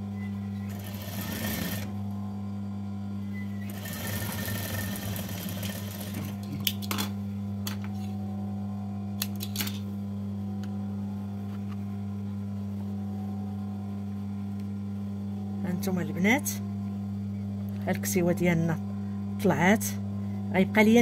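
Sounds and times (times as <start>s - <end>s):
steady low hum: 0.0s - 21.0s
sewing machine stitching: 0.7s - 1.9s, 3.6s - 6.4s.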